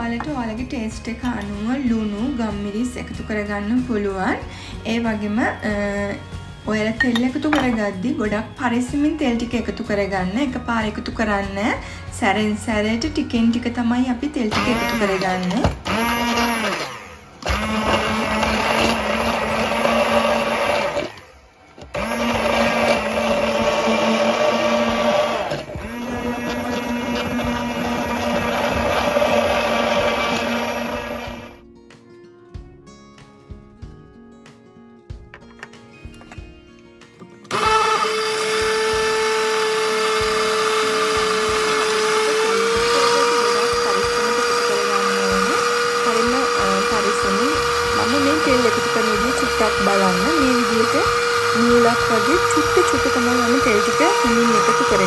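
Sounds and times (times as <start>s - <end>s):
stick blender motor whine: 14.5s - 31.6s, 37.5s - 55.0s.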